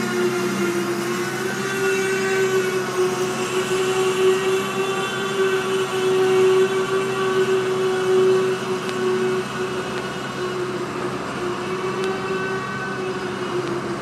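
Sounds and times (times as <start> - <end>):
rumble of freight cars: 0.0 - 14.0
train wheels squealing: 0.0 - 14.0.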